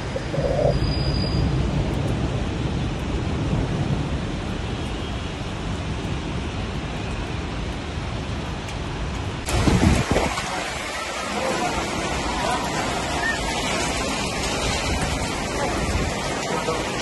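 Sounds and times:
low rumble: 0:00.0 - 0:02.4
heavy rain falling: 0:00.0 - 0:17.0.

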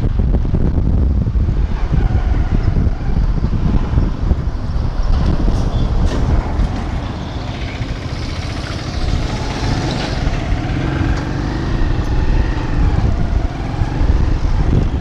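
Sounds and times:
road traffic: 0:00.0 - 0:15.0
wind on microphone: 0:00.0 - 0:15.0
motorcycle engine running: 0:04.4 - 0:15.0.

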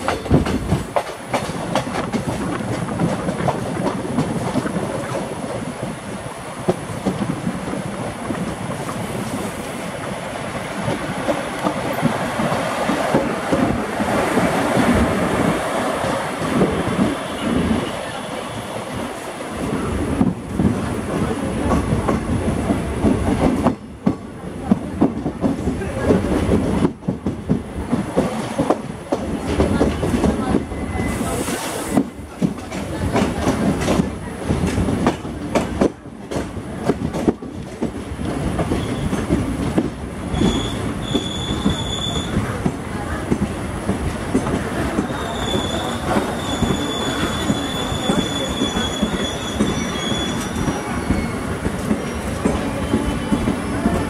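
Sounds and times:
train wheels clattering over rail joints: 0:00.0 - 0:05.6
train coaches running past: 0:00.0 - 0:54.0
high brake squeal: 0:40.4 - 0:42.5, 0:45.0 - 0:52.3.

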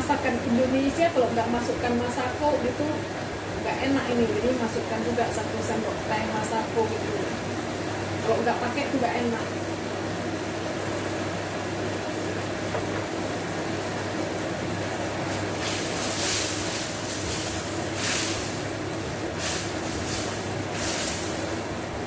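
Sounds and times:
fan humming: 0:00.0 - 0:22.0
paste sizzling in a pan: 0:15.1 - 0:21.6.

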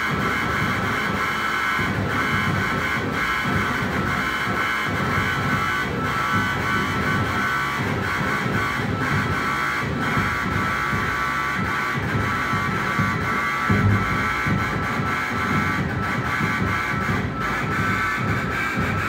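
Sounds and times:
steady high synth tones: 0:08.0 - 0:19.0
churning low rumble: 0:12.1 - 0:19.0
low thud: 0:13.0 - 0:16.6.

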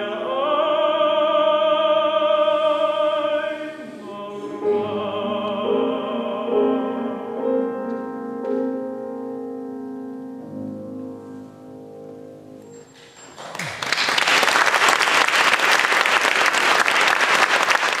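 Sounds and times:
piano chord ringing: 0:04.5 - 0:13.1
audience applause: 0:13.3 - 0:18.0.

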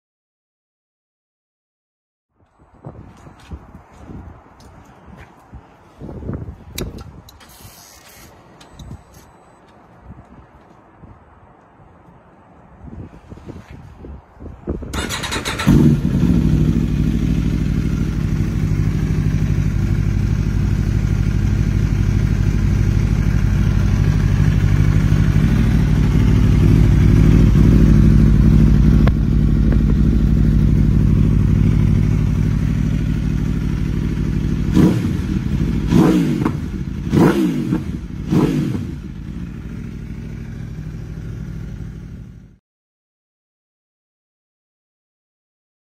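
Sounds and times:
engine revving: 0:15.0 - 0:19.8, 0:23.6 - 0:39.9
motorcycle engine idling: 0:15.0 - 0:37.1, 0:39.0 - 0:42.6.

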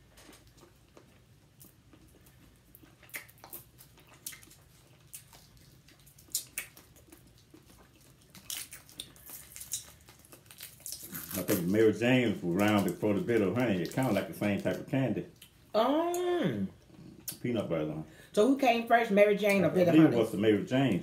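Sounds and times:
quiet chewing: 0:00.0 - 0:17.7
candy wrappers crackling: 0:03.6 - 0:15.2.

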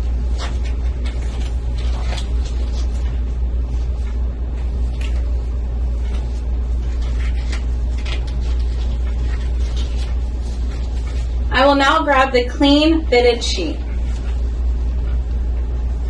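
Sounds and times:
disposable gloves crinkling: 0:00.0 - 0:12.2
low hum: 0:00.0 - 0:16.0.

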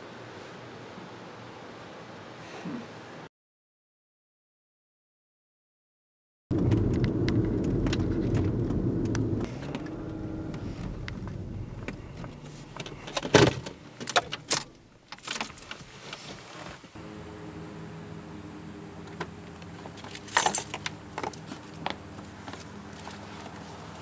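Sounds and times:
car engine rumble: 0:06.5 - 0:24.0
keys jangling: 0:20.1 - 0:20.9.

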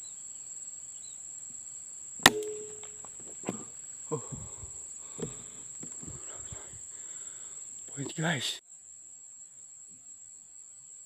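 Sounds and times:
high insect drone: 0:00.0 - 0:11.0
air rifle shot: 0:02.2 - 0:03.0.

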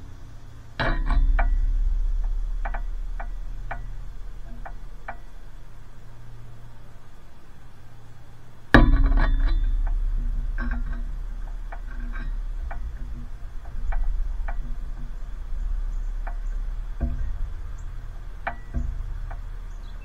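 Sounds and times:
low rumble: 0:00.0 - 0:20.0
loud knock with ringing: 0:08.8 - 0:20.0.

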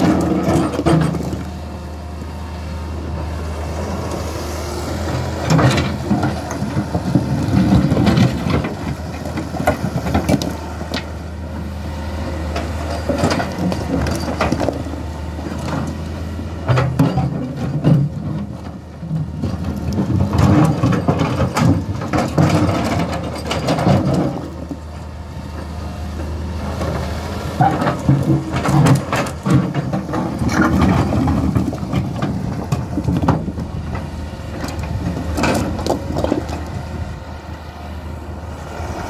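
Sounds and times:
diesel engine running: 0:00.0 - 0:39.0
rocks knocking and scraping: 0:34.7 - 0:36.7.

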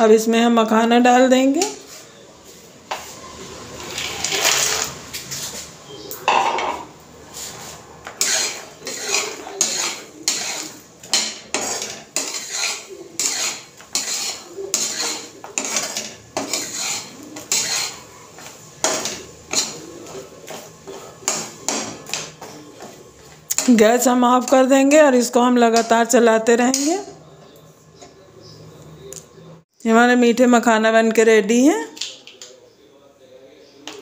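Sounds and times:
spatula scraping metal pan: 0:02.9 - 0:05.6, 0:06.3 - 0:27.2.

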